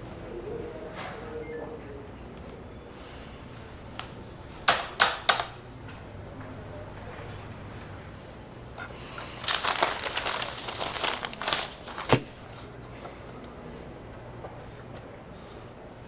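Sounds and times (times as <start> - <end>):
rustling and crinkling: 9.2 - 12.7.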